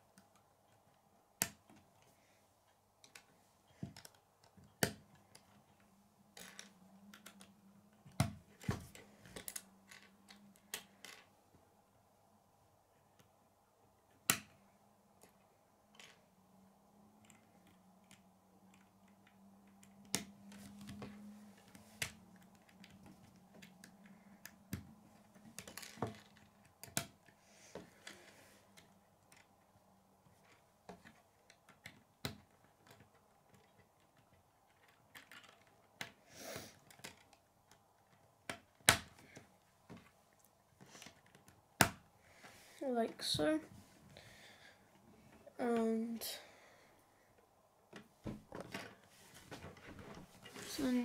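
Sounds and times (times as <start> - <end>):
plastic pieces snapping together: 14.2 - 14.6.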